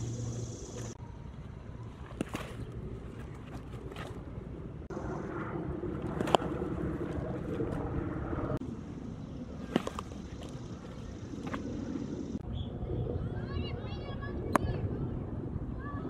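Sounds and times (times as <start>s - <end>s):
outdoor background noise: 0.0s - 16.0s
baseball smacking into glove: 6.1s - 7.2s, 9.7s - 10.6s.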